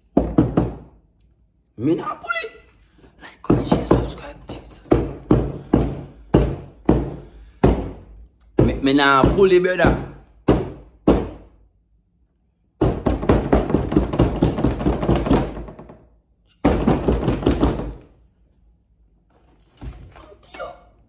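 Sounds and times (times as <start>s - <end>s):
rapid heavy knocking: 3.4s - 8.0s, 8.6s - 11.5s, 12.8s - 18.0s.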